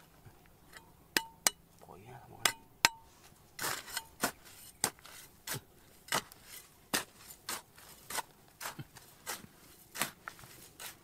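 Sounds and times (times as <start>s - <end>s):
metal tool striking rock: 0.7s - 1.7s, 2.4s - 8.8s.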